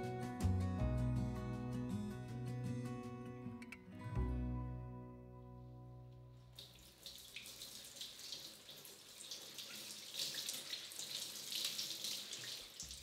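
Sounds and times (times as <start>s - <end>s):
faucet running into steel sink: 6.6s - 13.0s.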